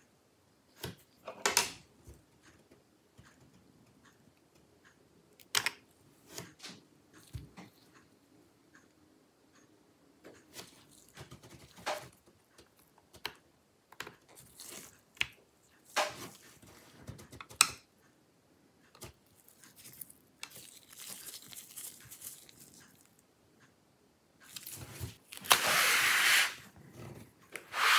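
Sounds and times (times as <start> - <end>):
rustles and small clicks: 18.8 - 23.7
screwdriver scratchy rubbing: 25.5 - 26.6, 27.6 - 27.9.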